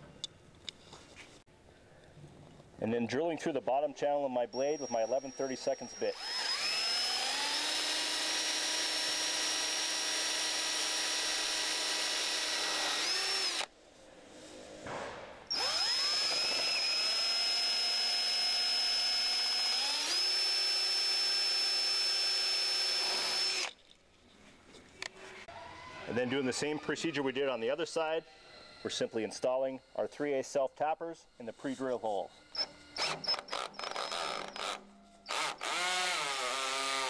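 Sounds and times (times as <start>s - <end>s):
cordless drill motor whine: 4.6s - 13.7s, 15.5s - 23.8s, 32.5s - 37.0s.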